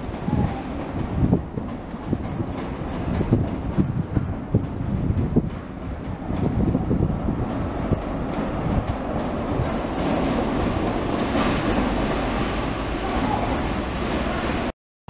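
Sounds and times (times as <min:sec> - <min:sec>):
train rumbling past: 0:00.0 - 0:14.7.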